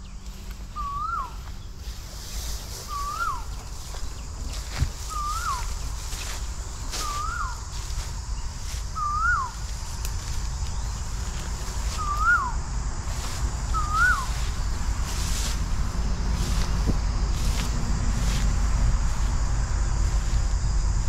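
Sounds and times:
low rumble: 0:03.5 - 0:21.0
bird call rising and dropping: 0:11.9 - 0:12.6, 0:13.7 - 0:14.4.

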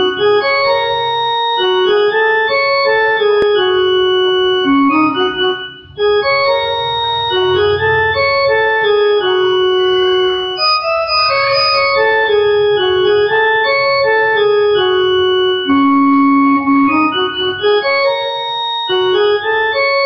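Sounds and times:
electronic keyboard organ melody: 0:00.0 - 0:20.0.

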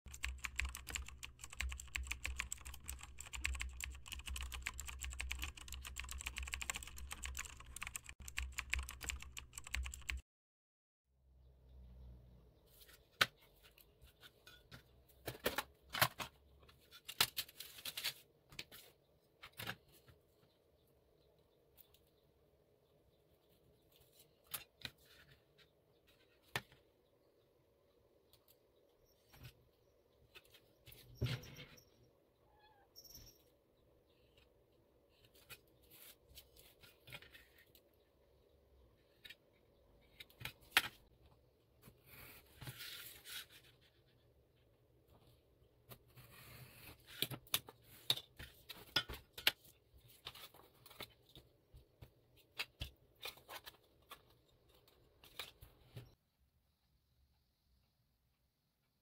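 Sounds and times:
faint squeak: 0:30.9 - 0:34.4.

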